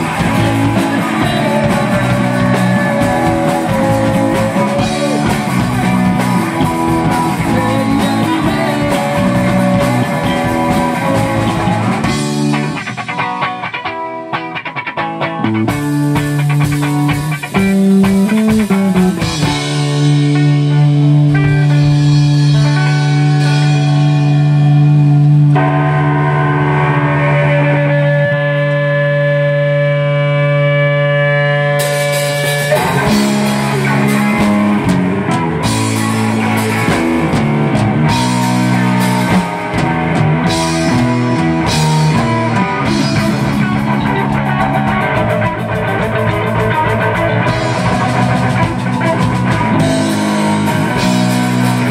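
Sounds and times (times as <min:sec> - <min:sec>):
rock band playing: 0:00.0 - 0:51.9
guitar chord ringing: 0:18.7 - 0:44.9.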